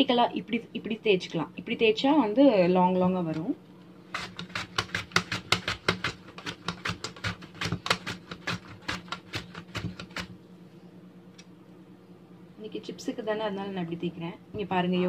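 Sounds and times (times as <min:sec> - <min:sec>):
steady low hum: 0:00.0 - 0:15.0
plantain rasping on slicer blade: 0:04.1 - 0:10.3.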